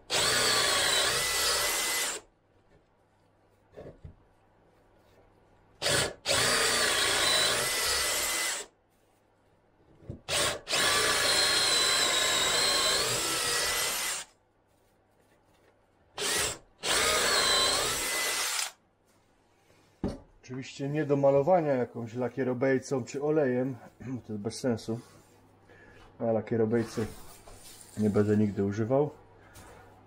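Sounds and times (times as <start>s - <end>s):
cordless drill boring into wood: 0.1s - 2.3s, 5.8s - 8.7s, 10.3s - 14.3s, 16.2s - 18.8s.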